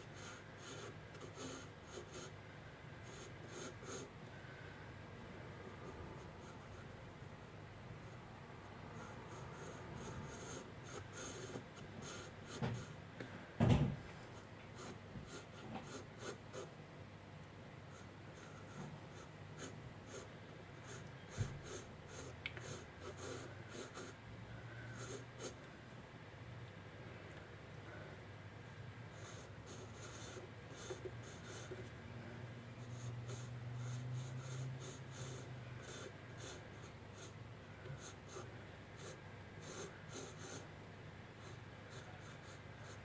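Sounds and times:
pencil scratching on paper: 0.0s - 2.3s, 3.0s - 4.1s, 9.0s - 13.0s, 14.4s - 16.8s, 17.9s - 25.6s, 29.1s - 31.9s, 32.8s - 40.7s, 41.4s - 43.0s
dull thump: 13.6s - 14.1s.

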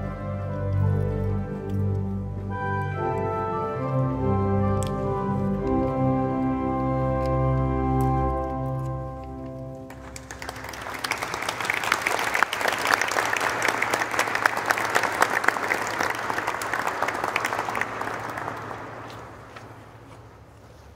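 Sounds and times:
audience applauding: 9.8s - 20.0s.

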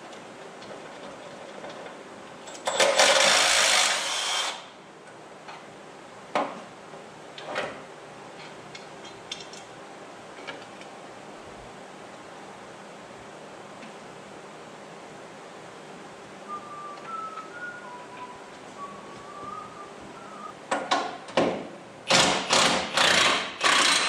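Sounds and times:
impact wrench bursts: 2.6s - 4.7s, 22.1s - 24.0s.

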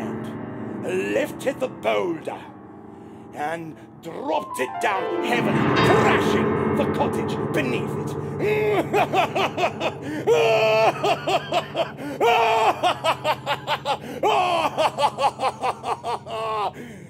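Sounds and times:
man laughing theatrically: 8.4s - 17.0s.

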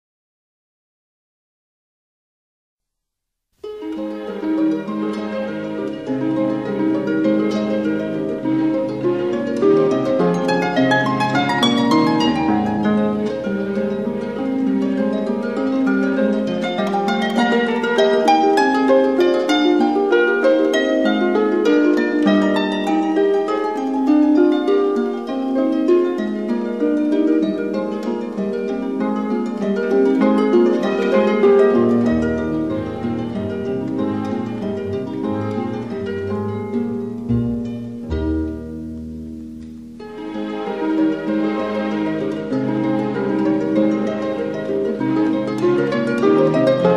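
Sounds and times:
harp plucked notes: 3.6s - 46.9s.

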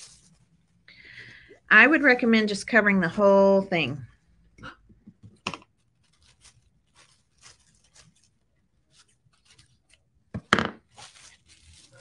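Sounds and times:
plastic sheet crinkling: 0.0s - 2.3s, 5.2s - 12.0s.

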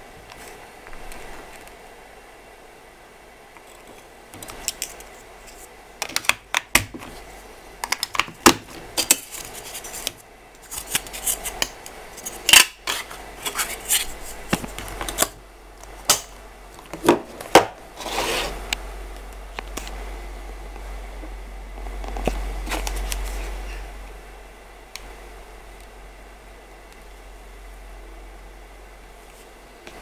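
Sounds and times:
scraping rub on table: 18.0s - 18.6s.

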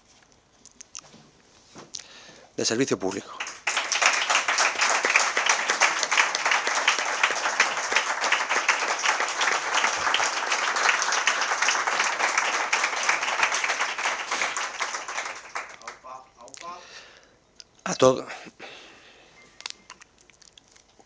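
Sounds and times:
crowd applauding: 3.1s - 16.2s.

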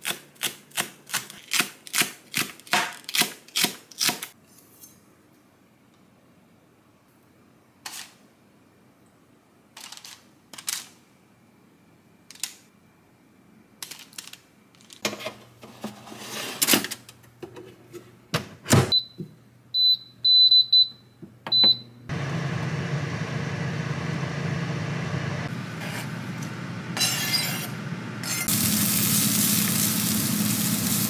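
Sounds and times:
oven fan whirring: 21.5s - 31.0s.

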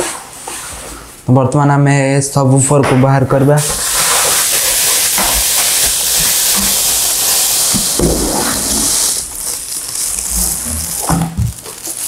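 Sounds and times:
packaging rustling and crinkling: 4.3s - 12.0s.

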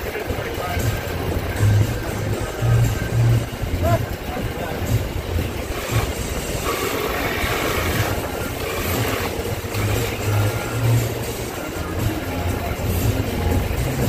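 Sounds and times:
cordless drill cutting wood: 5.6s - 10.3s.

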